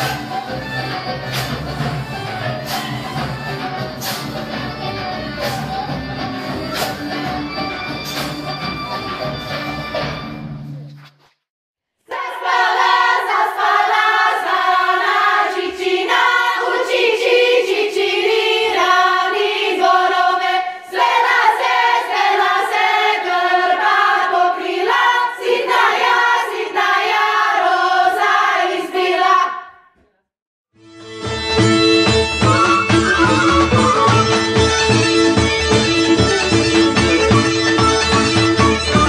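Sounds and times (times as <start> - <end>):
women's choir singing: 12.0 - 29.8.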